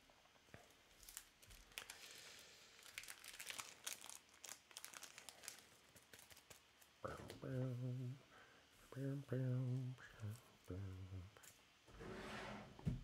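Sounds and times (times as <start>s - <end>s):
plastic packaging crinkling: 0.9s - 2.0s, 2.8s - 7.0s.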